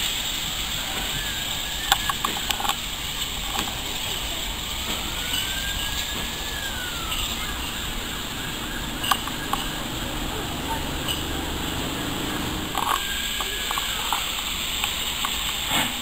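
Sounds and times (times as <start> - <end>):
sharp clicks of wheels: 0.0 - 16.0
steam locomotive hissing: 0.0 - 16.0
faint wheel squeal: 0.4 - 16.0.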